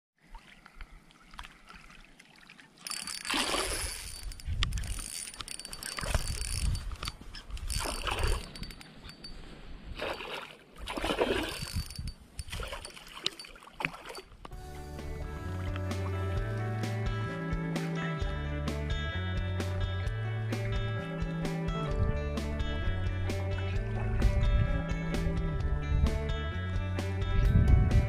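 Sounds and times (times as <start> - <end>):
water sloshing and splashing: 0.2 - 14.6.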